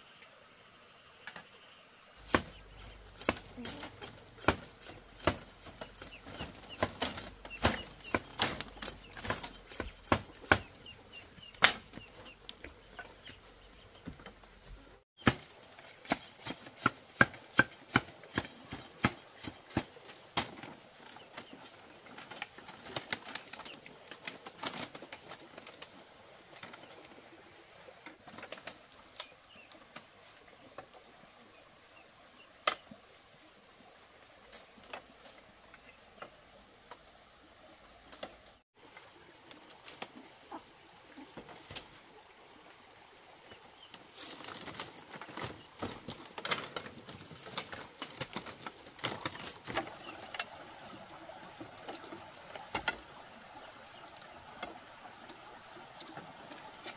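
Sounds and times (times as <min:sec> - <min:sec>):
hand tools chopping bamboo: 0:02.2 - 0:12.3, 0:15.2 - 0:20.8.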